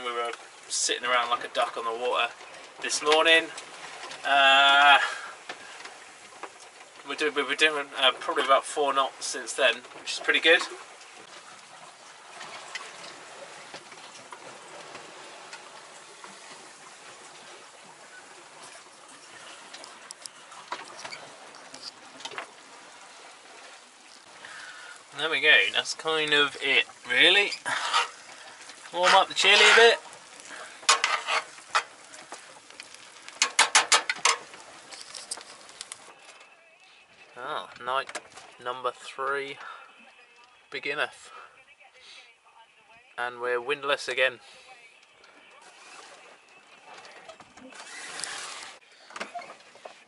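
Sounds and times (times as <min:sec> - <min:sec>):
water rushing along boat hull: 0:00.0 - 0:41.5, 0:43.8 - 0:50.0
spoon scraping frying pan: 0:27.5 - 0:28.3, 0:29.2 - 0:31.9.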